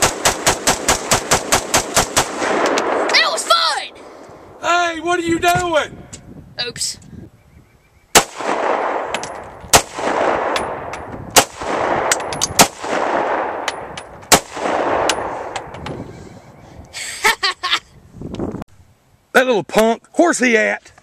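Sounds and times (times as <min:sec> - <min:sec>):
pistol shots with rolling echo: 0:00.0 - 0:03.1, 0:08.1 - 0:15.7.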